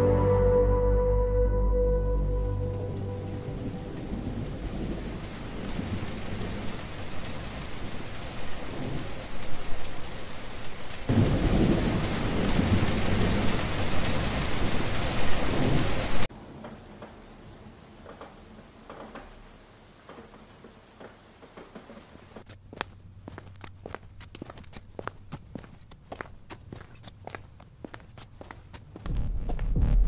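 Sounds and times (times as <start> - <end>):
heavy rain falling: 2.1 - 22.4
rolling thunder: 2.9 - 9.2, 11.1 - 16.3, 29.1 - 30.0.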